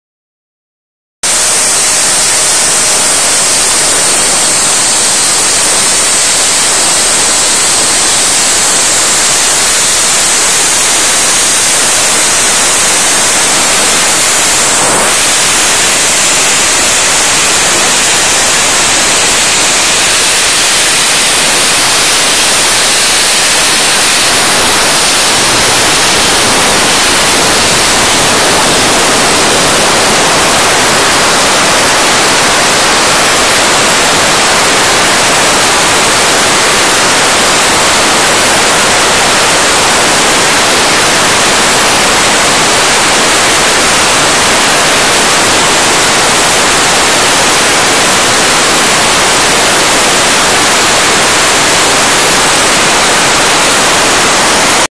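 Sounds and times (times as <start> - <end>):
blaster nozzle hissing: 1.3 - 37.4.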